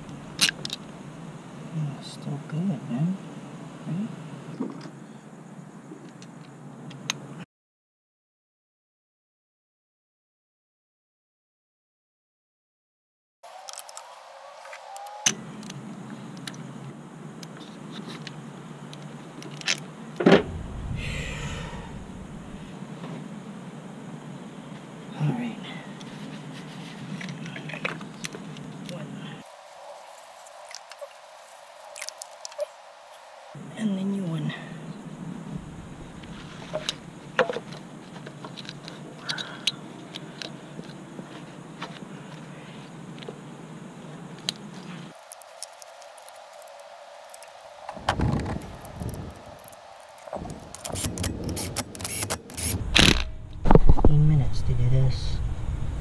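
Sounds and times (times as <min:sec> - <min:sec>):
steady low hum: 0:00.0 - 0:05.8, 0:19.9 - 0:29.4, 0:33.5 - 0:45.2, 0:48.1 - 0:56.0
ratchet clicks and clinks: 0:50.6 - 0:52.8.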